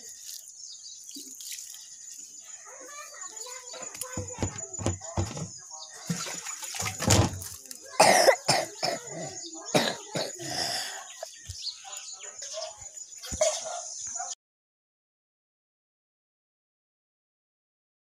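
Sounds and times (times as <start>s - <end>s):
phone handling knocks: 4.2s - 5.5s
person coughing: 8.0s - 11.0s.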